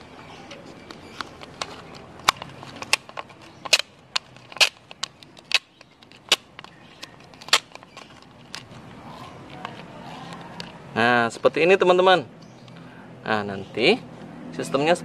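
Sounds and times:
duct tape crackling and ripping: 0.5 - 10.8.

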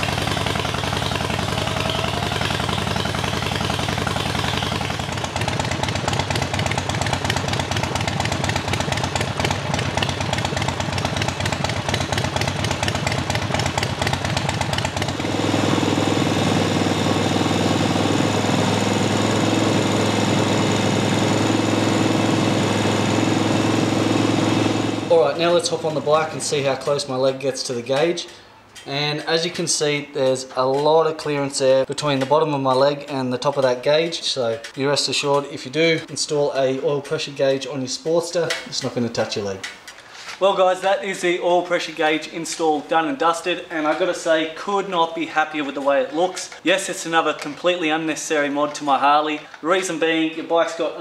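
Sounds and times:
motorcycle engine idling: 0.0 - 27.1.

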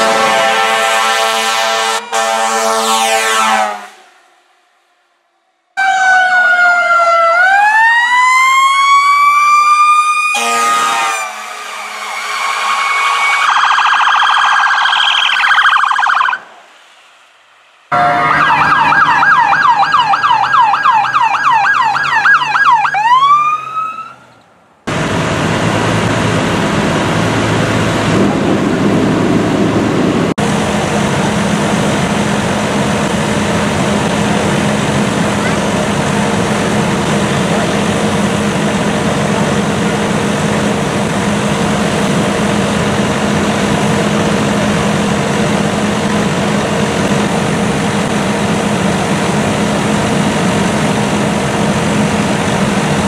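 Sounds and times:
horn blast: 0.0 - 4.1, 10.3 - 13.6, 17.9 - 19.2
fire engine siren wailing: 0.0 - 53.0
yelp siren: 5.8 - 16.5, 17.9 - 24.3
engine drone: 10.4 - 53.0.

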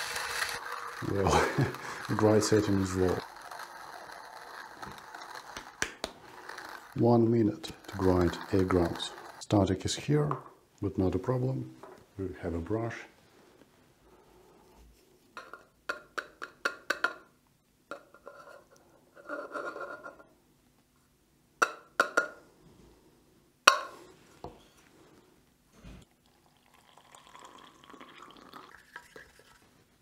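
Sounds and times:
soft scraping: 0.0 - 10.2
soft hissing: 0.0 - 10.6.

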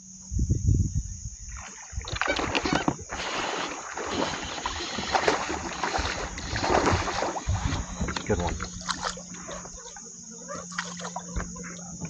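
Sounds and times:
water splashing and sloshing: 1.5 - 12.0
knocks and clicks around kayak: 2.1 - 3.2, 4.2 - 12.0.

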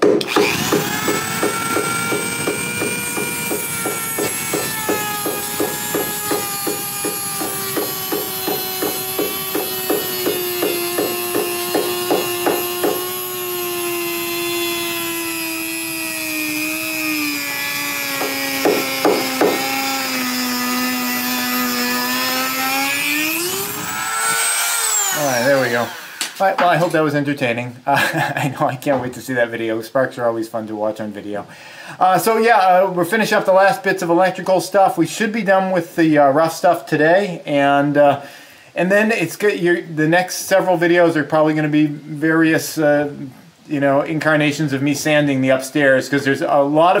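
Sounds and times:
rotary tool grinding metal: 0.2 - 26.5.

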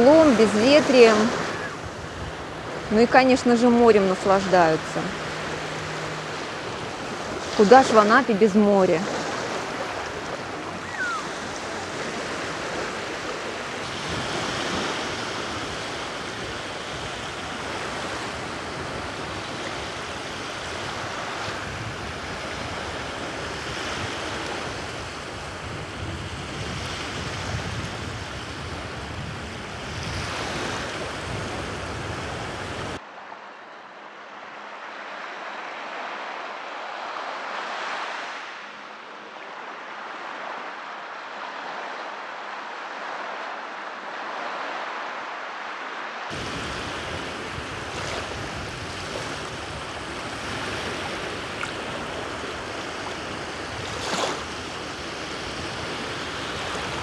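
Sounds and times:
small waves lapping on sandy shore: 0.0 - 57.0.

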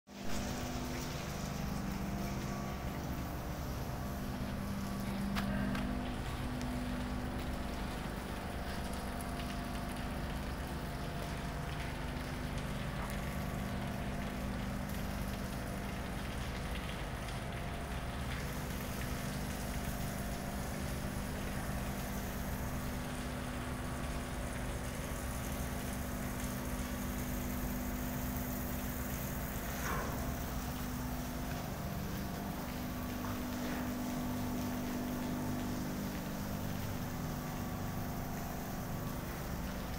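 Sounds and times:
machinery humming: 0.1 - 9.2.

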